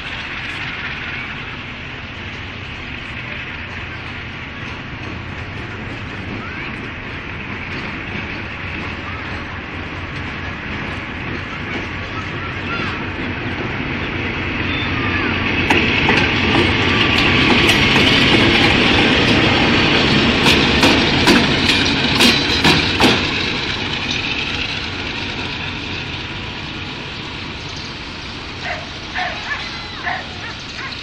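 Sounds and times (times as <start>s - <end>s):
diesel locomotive passing: 0.0s - 31.0s
metallic clanks of wheels on track: 0.0s - 31.0s
dog barking: 28.6s - 31.0s.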